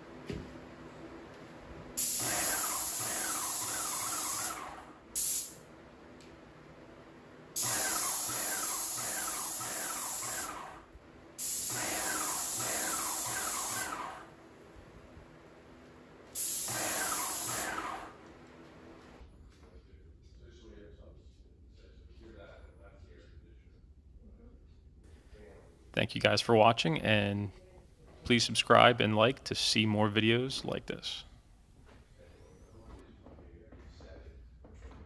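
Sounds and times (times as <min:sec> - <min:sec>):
paint sprayer hissing: 0:02.0 - 0:05.6, 0:07.6 - 0:14.4, 0:16.3 - 0:18.2.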